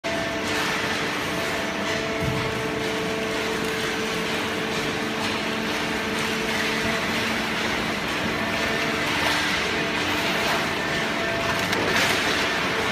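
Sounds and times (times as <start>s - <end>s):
baler machine humming: 0.0s - 12.9s.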